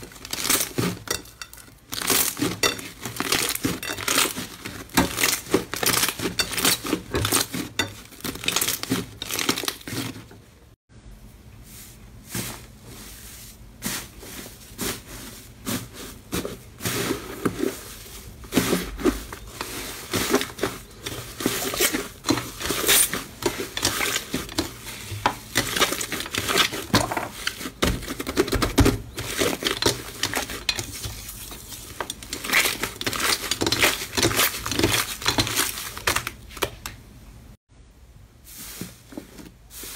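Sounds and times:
slime crackling and popping: 0:01.8 - 0:10.0.

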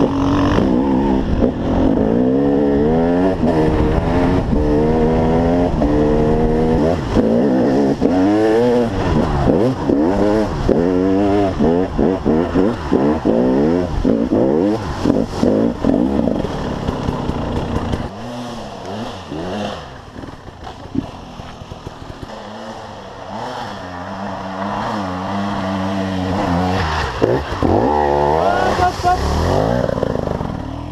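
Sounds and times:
two-stroke engine revving: 0:00.0 - 0:30.9.

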